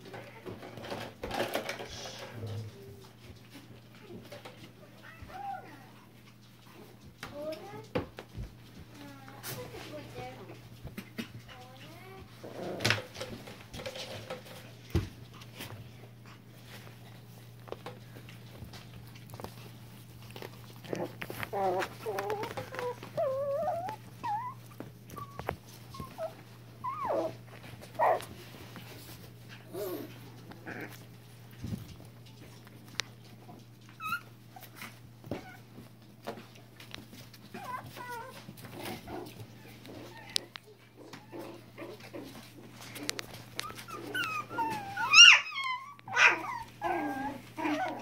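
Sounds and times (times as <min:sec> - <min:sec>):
puppies growling: 0:00.1 - 0:08.0, 0:10.2 - 0:48.0
puppies whining and whimpering: 0:20.9 - 0:28.2, 0:33.8 - 0:35.8, 0:37.2 - 0:42.1, 0:43.2 - 0:48.0
puppy yip: 0:44.1 - 0:46.7.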